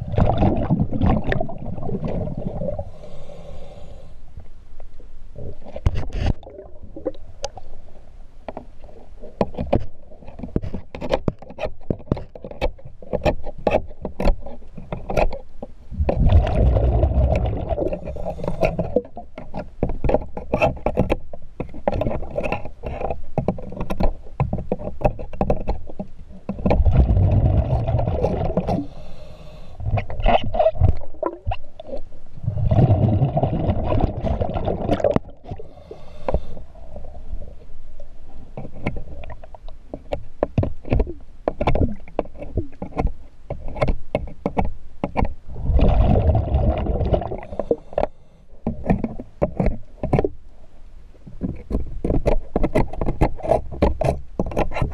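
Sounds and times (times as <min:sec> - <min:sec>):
rushing bubbles underwater: 0:00.0 - 0:03.0, 0:05.4 - 0:07.5, 0:15.9 - 0:19.2, 0:26.6 - 0:28.9, 0:29.8 - 0:35.7, 0:45.5 - 0:47.9
tools clicking on boat hull: 0:09.3 - 0:16.2, 0:18.3 - 0:27.0, 0:38.6 - 0:45.4, 0:47.6 - 0:50.4, 0:51.3 - 0:54.9.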